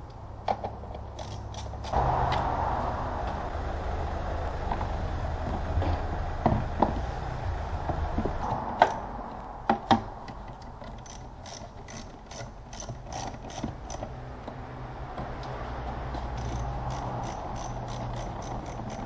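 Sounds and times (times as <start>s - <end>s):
ratchet wrench clicking: 1.2s - 1.9s, 11.0s - 14.0s, 16.4s - 19.0s.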